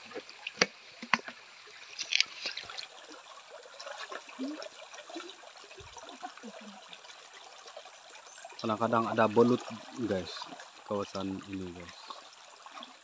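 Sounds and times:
water sloshing from hand net: 0.0 - 6.7
stream trickling over rocks: 0.0 - 13.0.

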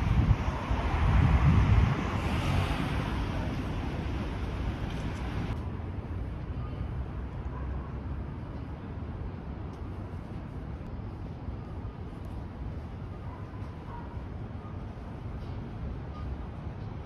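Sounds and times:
wind buffeting microphone: 0.0 - 6.0
street ambience hiss: 0.0 - 17.0.

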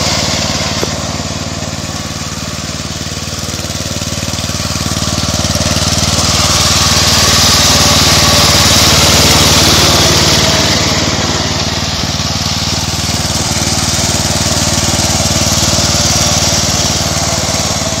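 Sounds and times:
riding lawn mower engine running: 0.0 - 18.0.

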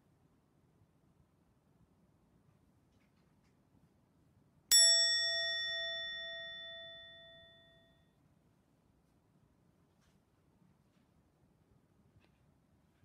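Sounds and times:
bell struck and ringing: 4.7 - 8.0.

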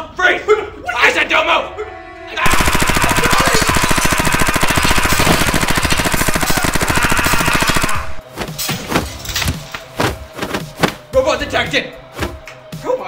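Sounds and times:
automatic rifle fire: 2.5 - 8.2.

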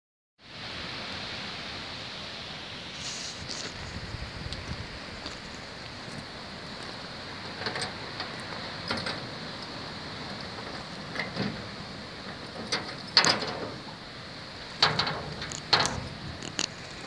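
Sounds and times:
steady hiss: 0.4 - 17.0
padlock clicking and rattling: 14.8 - 16.8.

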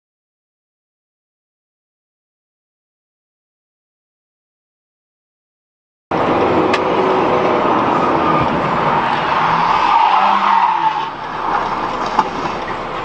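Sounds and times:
car road and engine noise: 6.1 - 13.0
tire screech: 6.1 - 13.0.

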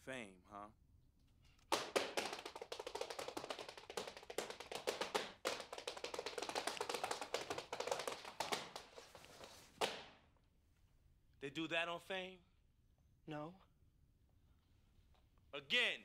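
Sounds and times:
rapid dense tapping: 1.7 - 10.0.

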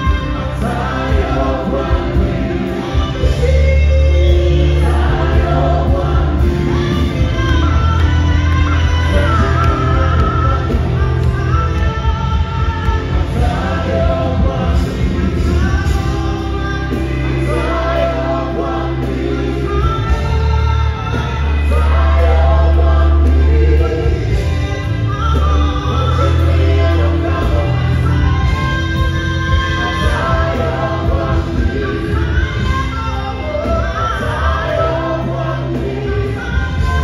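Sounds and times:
backing vocalists singing: 0.0 - 37.0
keyboard: 0.0 - 37.0
woman singing lead: 0.0 - 37.0.

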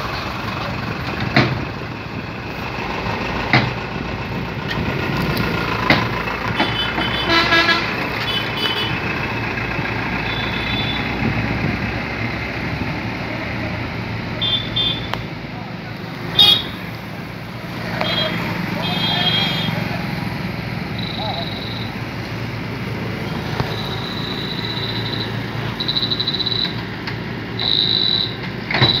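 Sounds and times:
excavator diesel engine running: 0.0 - 29.0
sharp knocks: 3.5 - 3.8, 5.8 - 7.0
vehicle horn toots: 6.6 - 9.0, 10.2 - 11.2, 14.4 - 15.2, 16.3 - 16.8, 18.0 - 19.8, 27.6 - 29.0.

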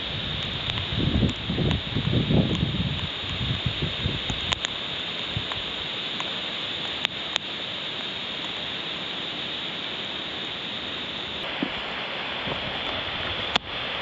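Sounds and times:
flowing stream water: 0.0 - 14.0
sharp clicks: 4.2 - 4.8.

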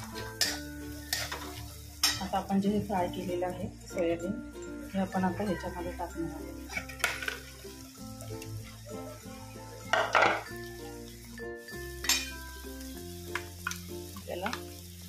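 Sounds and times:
metal spatula scraping pan: 0.0 - 2.4
light sizzle: 0.0 - 15.0
soft background music: 0.0 - 15.0.

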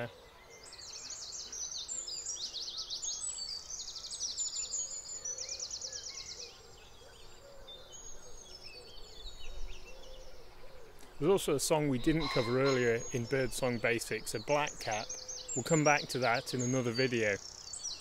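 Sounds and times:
songbirds singing: 0.0 - 18.0
wood pigeons cooing: 4.9 - 17.3.

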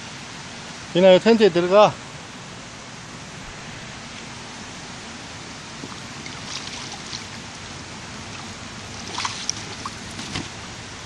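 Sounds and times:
stream running: 0.0 - 11.0
splashes from wading: 5.6 - 10.8.

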